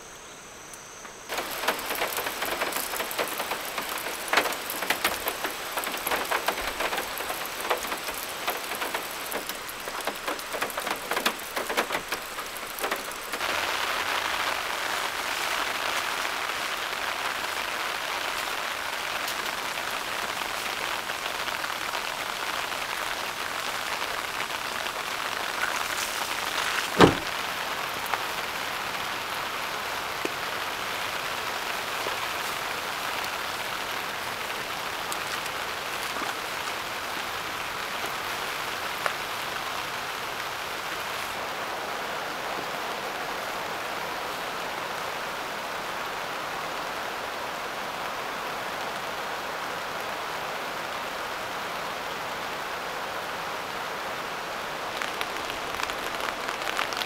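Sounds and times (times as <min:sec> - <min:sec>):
steady rain: 0:00.0 - 0:57.0
van hatch slamming shut: 0:26.9 - 0:27.3.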